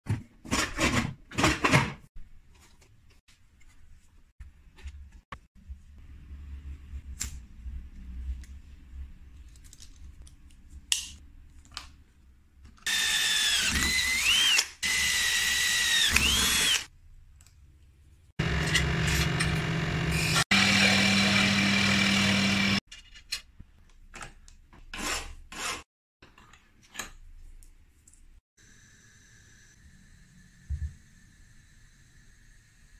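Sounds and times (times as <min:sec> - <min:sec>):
power tool low hum: 0:12.9 - 0:16.9, 0:18.4 - 0:22.8.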